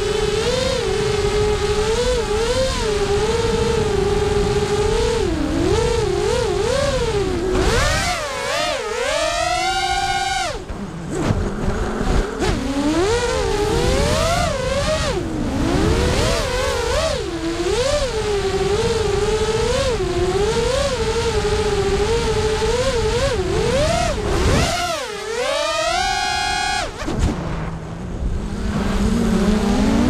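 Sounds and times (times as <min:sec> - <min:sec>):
drone motors whining: 0:00.0 - 0:30.0
rushing air rumble: 0:10.6 - 0:14.6, 0:27.0 - 0:30.0.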